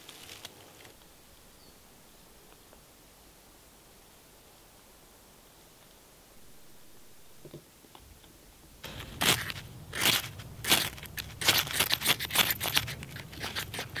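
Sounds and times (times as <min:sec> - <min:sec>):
ferro rod scraping: 0:08.8 - 0:14.0.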